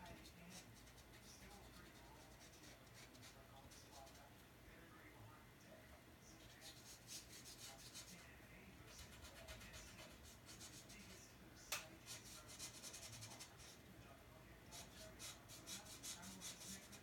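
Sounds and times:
brush pen scratching on paper: 0.0s - 4.2s, 6.4s - 8.2s, 8.9s - 11.2s, 12.0s - 13.8s, 14.7s - 17.0s.

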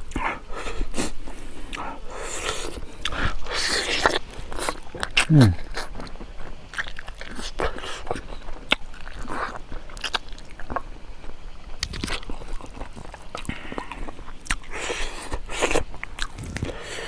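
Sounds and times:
close chewing: 0.0s - 17.0s
mouth clicks and smacks: 11.8s - 13.5s, 14.4s - 14.7s, 15.4s - 16.8s.

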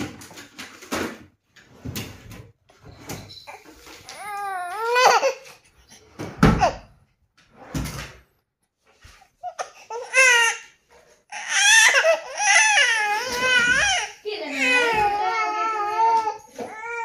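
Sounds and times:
infant crying: 4.0s - 5.5s, 9.4s - 17.0s.

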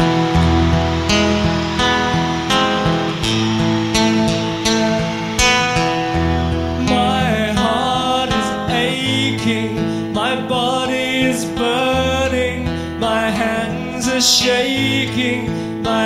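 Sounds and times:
gliding melody line: 0.0s - 9.4s
keyboard chords: 0.0s - 9.7s
bass line: 0.0s - 15.5s
acoustic guitar: 0.0s - 16.0s.

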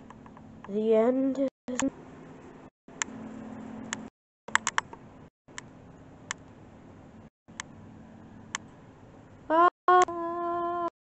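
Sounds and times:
low steady hum: 0.0s - 10.9s
sharp clicks: 3.9s - 5.7s.

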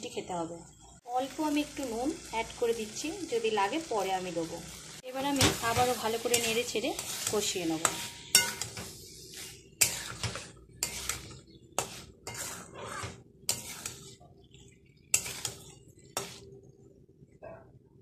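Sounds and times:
spatula scraping metal pan: 5.4s - 14.3s, 15.1s - 16.5s.

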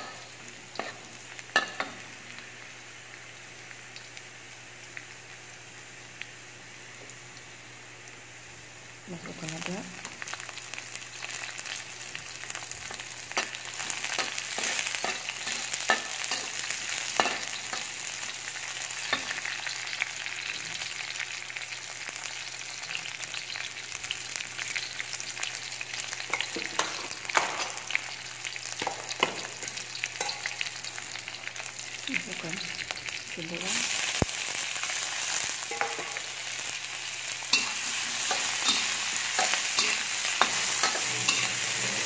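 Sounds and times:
food sizzling in hot oil: 0.0s - 42.0s
metal spatula scraping a wok: 37.5s - 42.0s.

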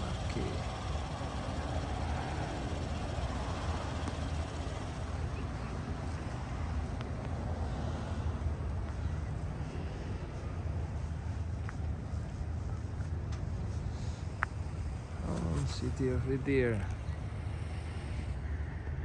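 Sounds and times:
street traffic rumble: 0.0s - 19.0s.

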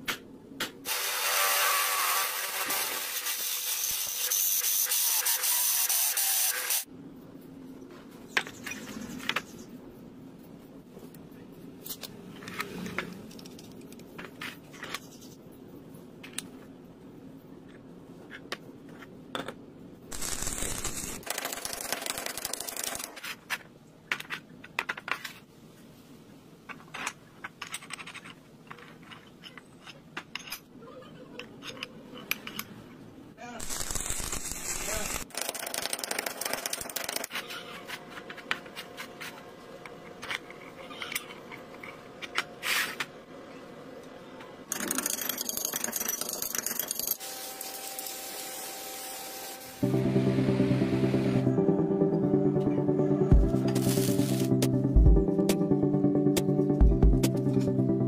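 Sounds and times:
small steel parts clinking: 44.7s - 47.3s.

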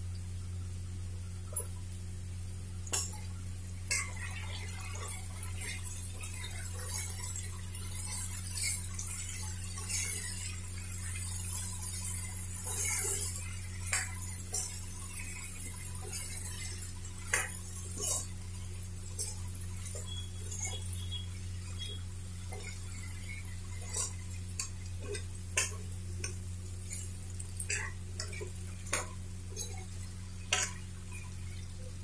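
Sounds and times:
spoon scraping metal pan: 27.7s - 31.3s.

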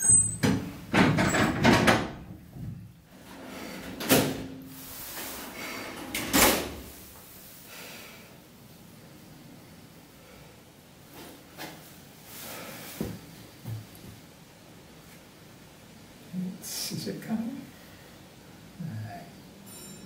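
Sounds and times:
doors rattling: 0.0s - 2.5s.

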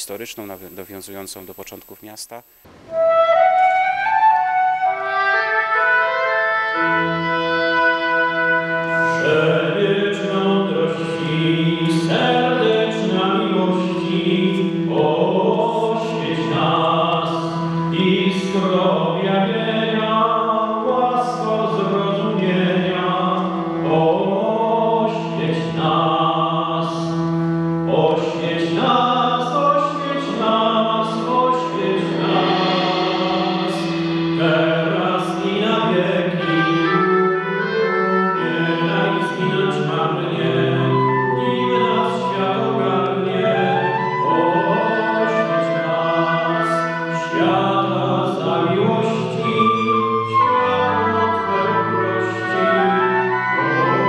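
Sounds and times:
choir singing: 28.0s - 54.0s
low held drone note: 31.8s - 37.2s.

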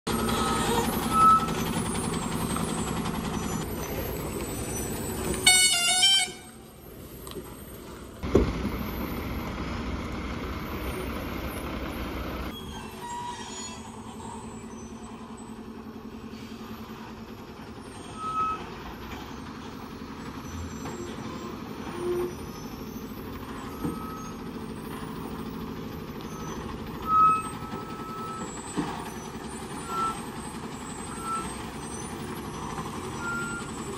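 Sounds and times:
lorry diesel engine running: 0.0s - 33.9s
loud horn blast: 5.4s - 6.6s.

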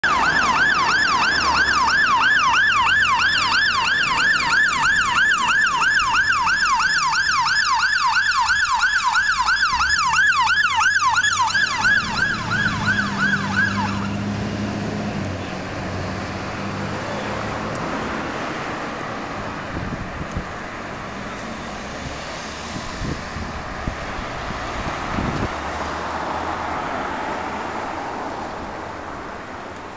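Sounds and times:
fire engine siren yelping: 0.0s - 15.8s
diesel engine passing: 0.0s - 29.9s.

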